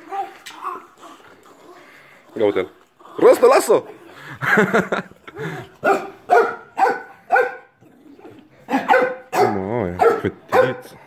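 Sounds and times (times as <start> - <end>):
dogs barking: 5.8 - 7.8, 8.6 - 11.0.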